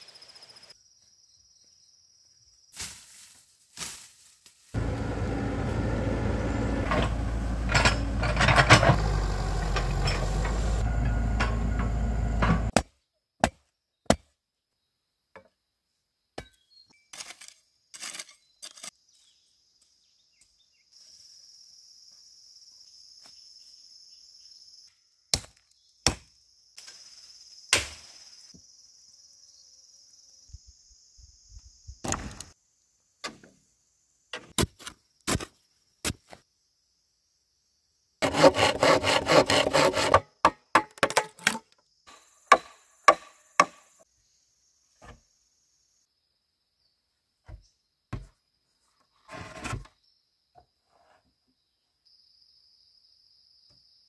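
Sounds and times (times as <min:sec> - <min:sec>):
loud machine rumbling: 0:04.8 - 0:12.7
high insect drone: 0:26.4 - 0:34.3.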